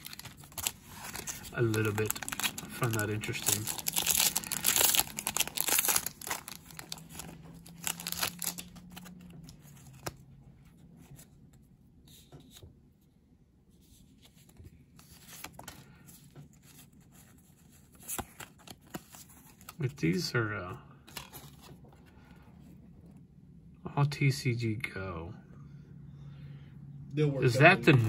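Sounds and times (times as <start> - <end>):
foil wrapper crinkling and tearing: 0.0 - 10.2
cards rustling and clicking: 0.0 - 12.8, 13.8 - 19.9, 21.0 - 23.2.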